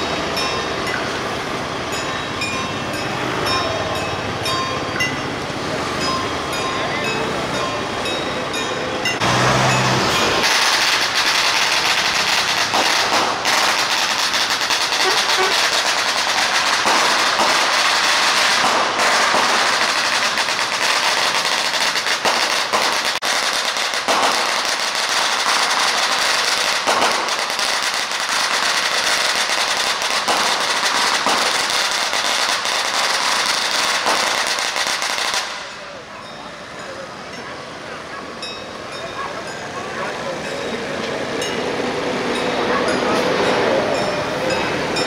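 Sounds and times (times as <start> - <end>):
firecrackers crackling: 9.1 - 36.9
sharp firecracker bangs: 10.2 - 36.0.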